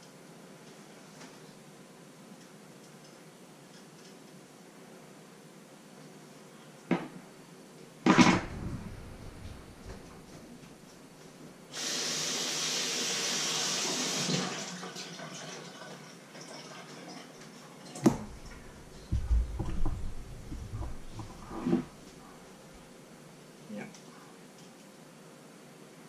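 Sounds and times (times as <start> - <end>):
knocks and thumps: 8.1 - 10.6, 18.0 - 22.1
kitchen tap running: 11.8 - 22.0.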